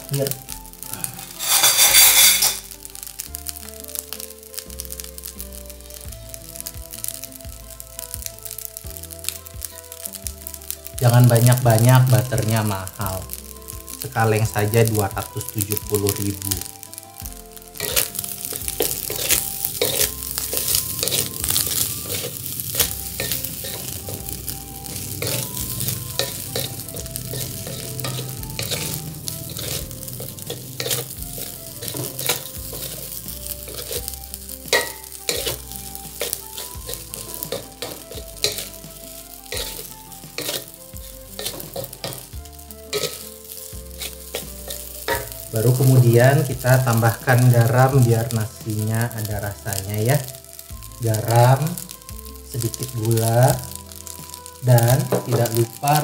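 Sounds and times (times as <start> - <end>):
rice sizzling in a pan: 0.0 - 56.0
spatula scraping a wok: 1.1 - 3.2, 15.8 - 48.1.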